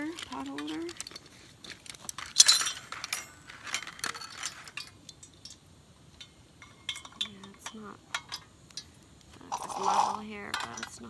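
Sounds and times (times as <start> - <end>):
cookware clinking and rattling: 1.9 - 5.6, 6.6 - 8.5, 9.4 - 11.0.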